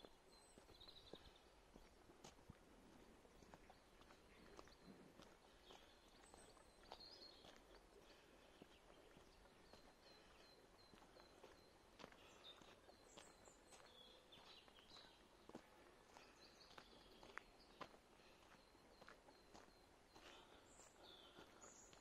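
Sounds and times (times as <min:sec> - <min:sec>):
small birds singing: 0:00.0 - 0:22.0
soft footsteps on trail: 0:00.0 - 0:22.0.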